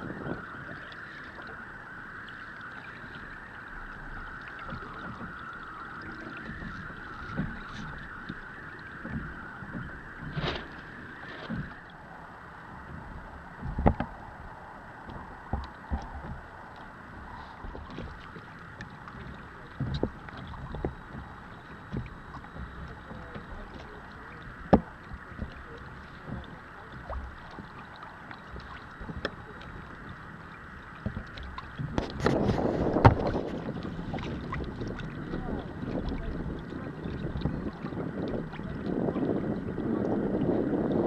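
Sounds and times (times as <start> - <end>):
knocks and slaps on hull: 0.0 - 12.0, 12.8 - 41.0
water washing against hull: 0.0 - 41.0.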